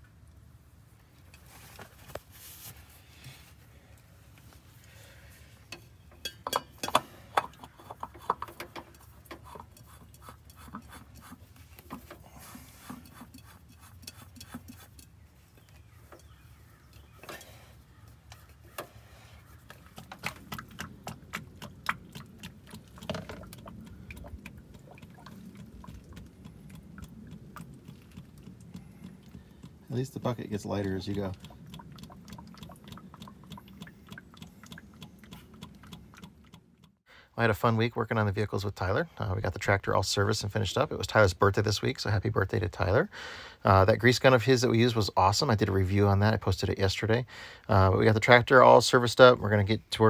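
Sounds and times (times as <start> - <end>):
clicks and light metal taps: 5.7 - 10.9.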